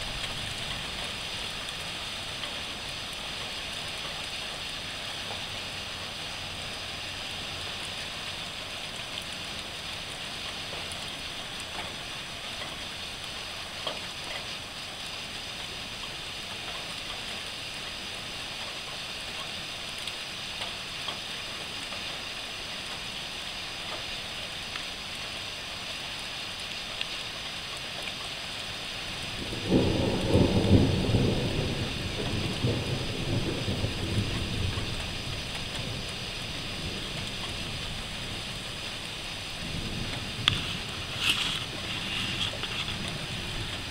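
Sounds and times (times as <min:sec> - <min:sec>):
heavy rain hissing: 0:00.0 - 0:43.9
thunder rumbling: 0:29.1 - 0:43.9.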